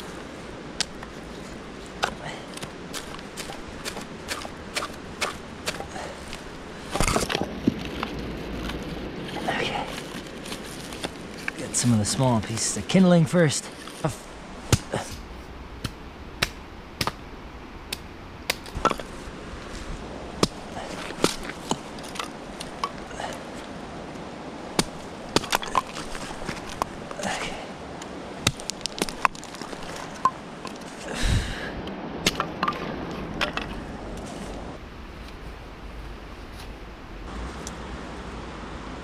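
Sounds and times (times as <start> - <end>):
axe chopping wood: 3.0 - 6.0, 14.7 - 17.2, 20.4 - 23.0, 24.8 - 26.0, 28.4 - 29.5, 32.2 - 33.7.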